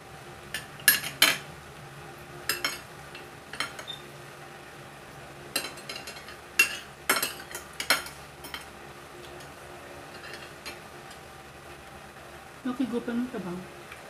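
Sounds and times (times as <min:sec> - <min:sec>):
cutlery clinking on a plate: 0:00.6 - 0:01.4, 0:02.5 - 0:02.8, 0:03.5 - 0:04.0, 0:05.6 - 0:08.7, 0:10.1 - 0:10.8.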